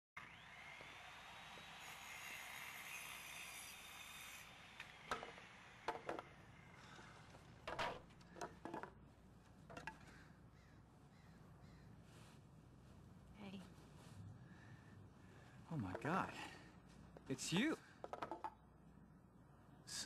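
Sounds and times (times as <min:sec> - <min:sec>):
power tool whine: 0:00.2 - 0:06.8
crows cawing: 0:10.0 - 0:12.0.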